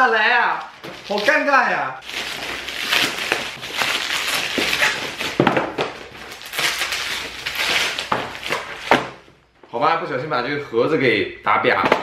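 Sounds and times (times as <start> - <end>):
plastic wrap crinkling: 0.0 - 9.2
cardboard boxes knocking: 5.2 - 6.1.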